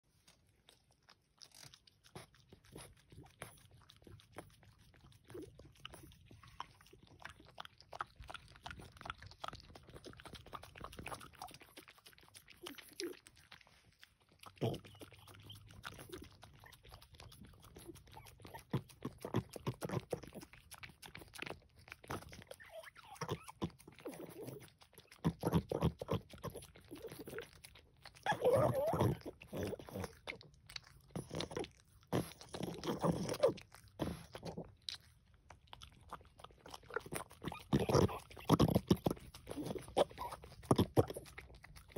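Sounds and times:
dog licking and lapping: 0.1s - 41.9s.

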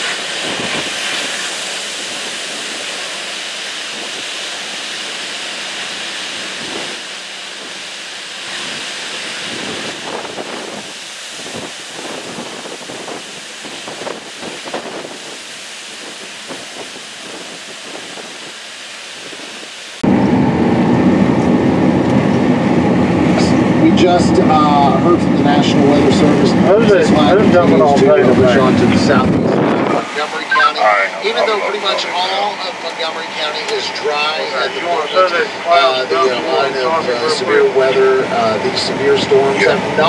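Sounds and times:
machine drone inside cab: 19.9s - 40.0s.

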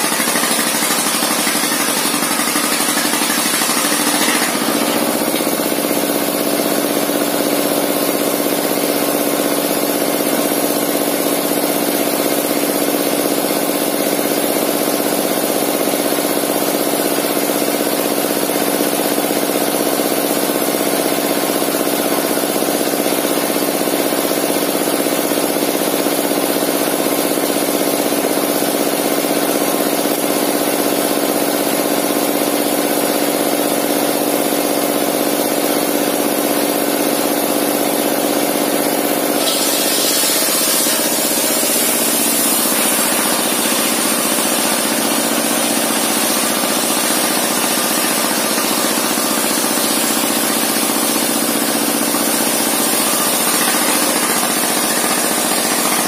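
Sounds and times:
circular saw and engine droning: 0.0s - 7.8s, 37.7s - 56.0s.

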